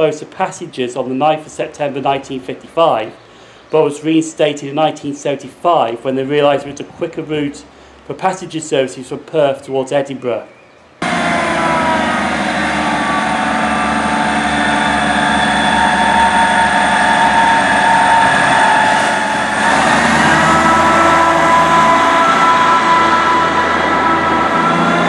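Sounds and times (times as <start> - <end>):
train engines and wheels rumbling: 10.5 - 25.0
train whining tones: 11.0 - 25.0.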